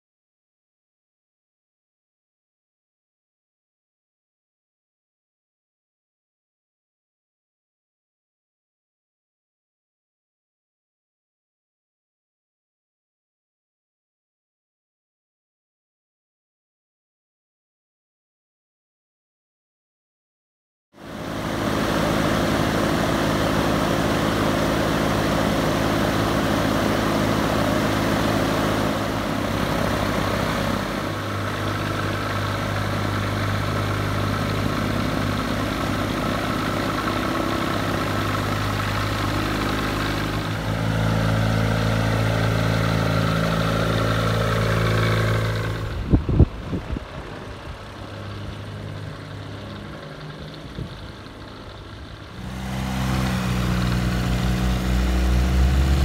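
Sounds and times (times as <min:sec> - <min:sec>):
aircraft engine idling: 0:21.0 - 0:56.0.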